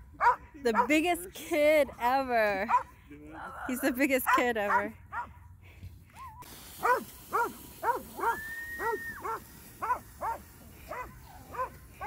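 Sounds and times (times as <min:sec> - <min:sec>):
dog barking: 0:00.2 - 0:00.9, 0:02.7 - 0:02.9, 0:04.3 - 0:05.4, 0:06.8 - 0:11.8.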